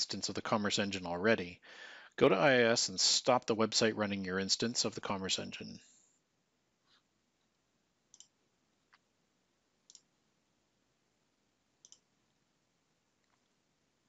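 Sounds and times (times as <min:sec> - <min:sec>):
computer mouse clicks: 0:08.1 - 0:09.0, 0:09.8 - 0:10.1, 0:11.8 - 0:12.1.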